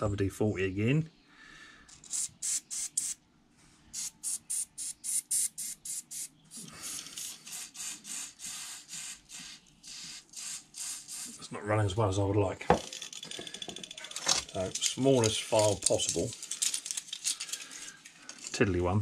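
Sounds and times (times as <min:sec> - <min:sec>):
aerosol spray hisses: 0:02.1 - 0:03.2, 0:03.9 - 0:11.5.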